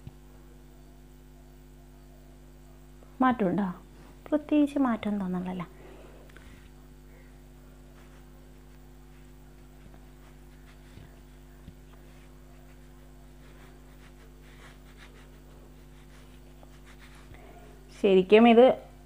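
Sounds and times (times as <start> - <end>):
low electrical hum: 0.0 - 19.0
soft rustles: 7.9 - 17.4.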